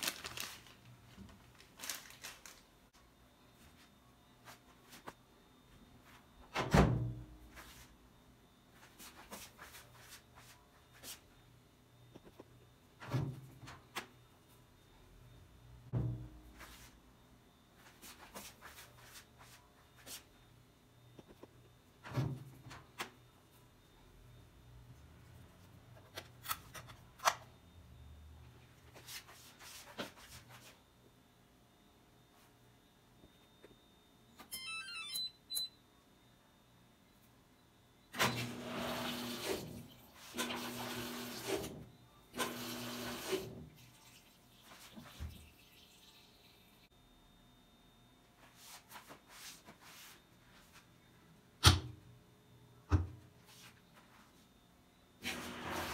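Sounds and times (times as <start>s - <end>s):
electronic beeps and clicks: 34.4s - 35.8s
washing machine churning: 38.2s - 46.3s.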